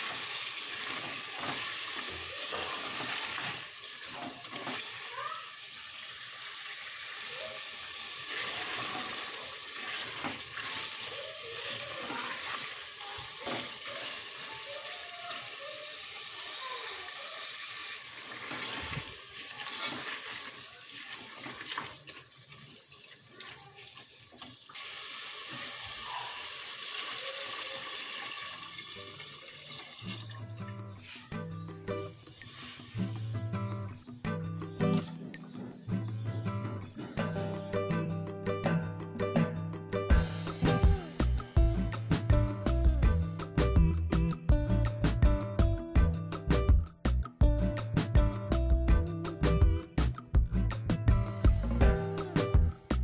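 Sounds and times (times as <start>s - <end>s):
meat sizzling in oil: 0.0s - 22.3s, 24.5s - 29.4s, 32.1s - 33.4s
water pouring and splashing: 0.0s - 31.3s, 32.1s - 33.4s.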